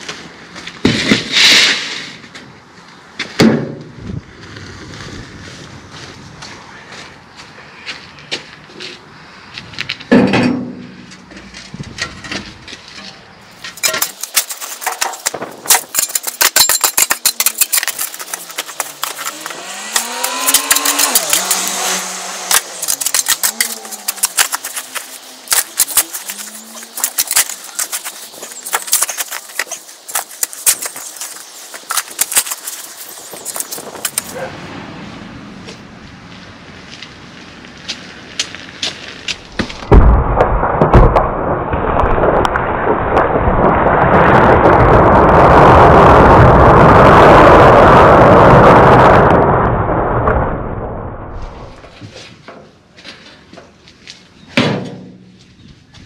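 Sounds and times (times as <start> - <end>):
spade scraping stony soil: 12.1 - 34.5.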